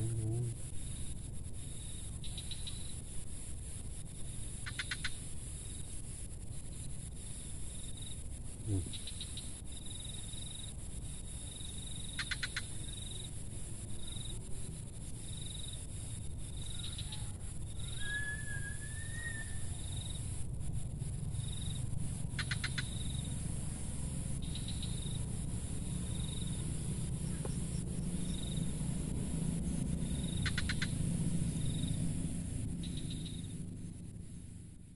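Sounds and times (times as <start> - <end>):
steady low rumble: 0.0 - 18.0, 18.7 - 34.9
insects chirping: 0.0 - 34.9
whistled bird call: 16.8 - 19.9.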